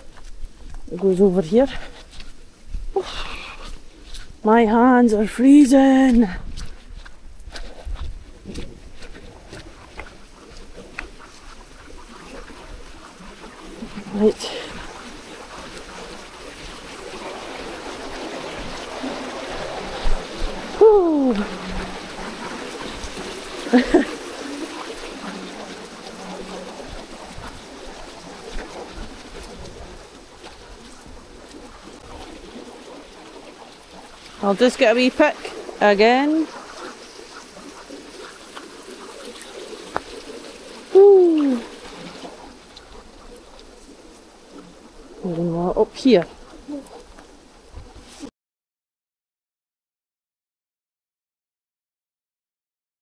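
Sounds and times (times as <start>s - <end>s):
woman's wordless vocal sound: 2.9s - 3.8s, 20.8s - 21.6s, 40.9s - 41.8s
stream rushing over stones: 8.4s - 47.6s
short voice sound: 41.0s - 41.7s.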